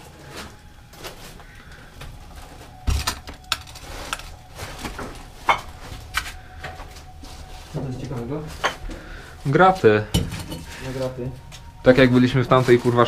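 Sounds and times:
knocks and clinks: 10.1s - 10.8s.

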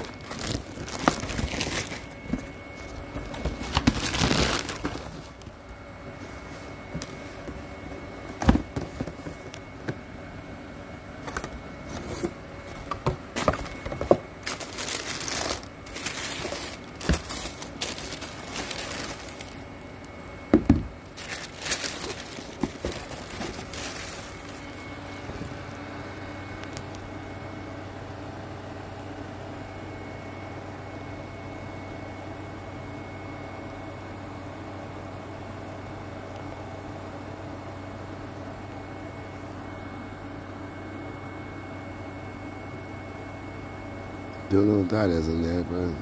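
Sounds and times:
tissue paper rustling and crinkling: 0.0s - 5.5s, 13.4s - 19.6s, 21.1s - 25.6s
faint steady hum: 0.0s - 46.0s
cardboard box knocks and bumps: 16.3s - 18.0s.

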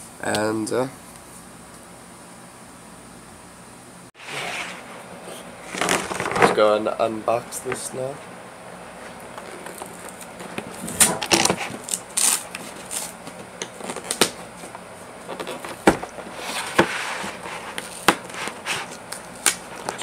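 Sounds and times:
cardboard rustling scrape: 4.2s - 6.6s, 15.4s - 19.0s.

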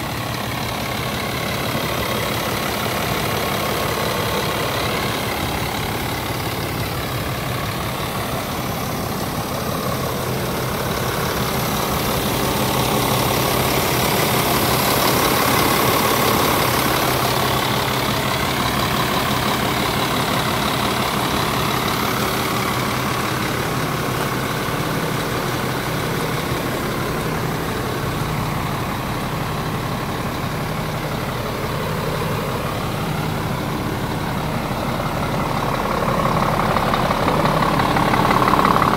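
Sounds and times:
truck diesel engine idling: 0.0s - 38.9s.

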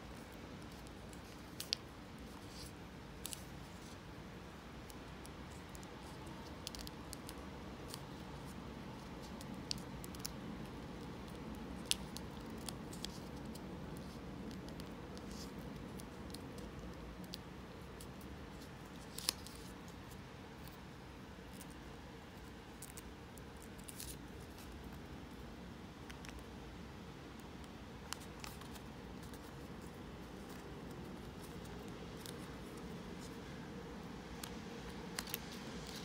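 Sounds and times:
faint room hum: 0.0s - 36.0s
paper crinkling and rustling: 0.1s - 4.0s, 4.8s - 20.8s, 34.3s - 36.0s.

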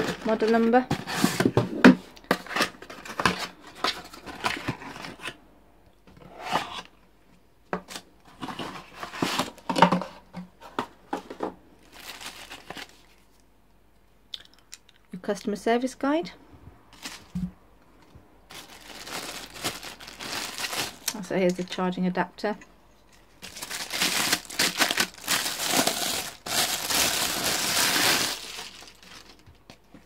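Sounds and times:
cardboard and paper rustling: 0.0s - 5.4s, 7.8s - 13.2s, 17.0s - 17.5s, 18.5s - 21.2s, 23.1s - 30.0s.

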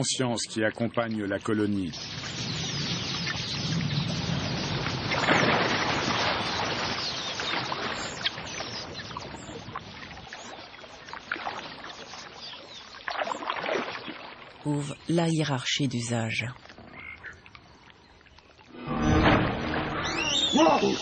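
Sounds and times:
water splashing and churning: 0.0s - 21.0s
faint bird chirps: 20.0s - 21.0s.

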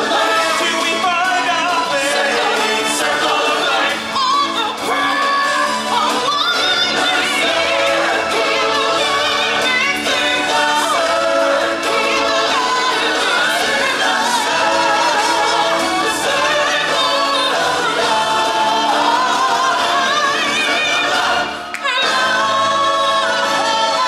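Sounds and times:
choir singing: 0.0s - 24.0s
singer with vibrato: 0.0s - 24.0s.

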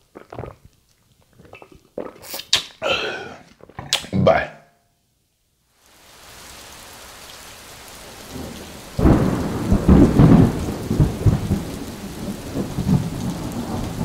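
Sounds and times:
rain hissing: 5.7s - 14.0s
thunderclap rumbling: 8.1s - 14.0s.

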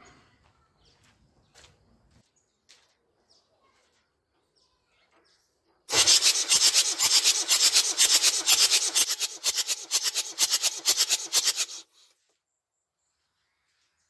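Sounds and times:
diesel engine cranking on starter: 5.9s - 11.8s.

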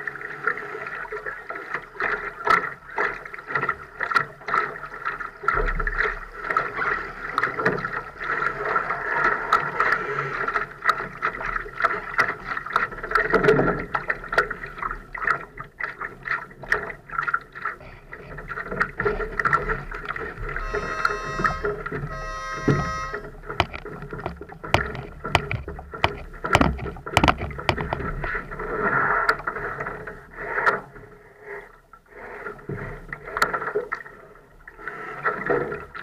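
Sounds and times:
water lapping against hull: 0.0s - 36.0s
sharp knocks and ticks: 20.6s - 28.3s.

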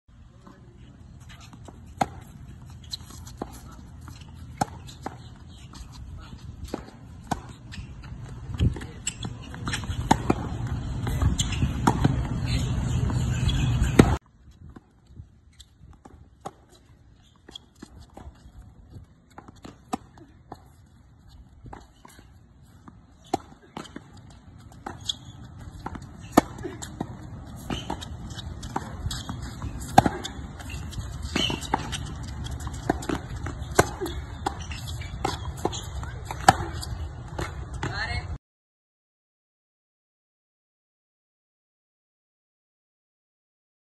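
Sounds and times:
balls bouncing on hard court: 0.3s - 38.3s
tennis racquets striking balls: 0.4s - 14.9s, 15.6s - 38.1s.

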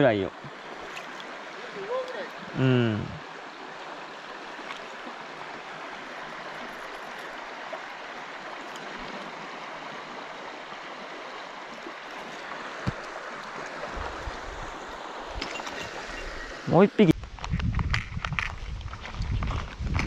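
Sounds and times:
stream water rushing: 0.0s - 17.1s.

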